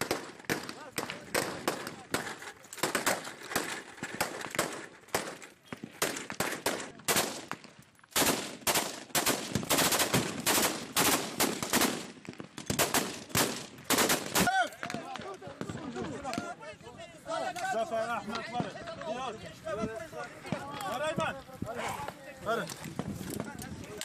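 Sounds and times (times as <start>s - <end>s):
gunshots: 0.0s - 15.0s.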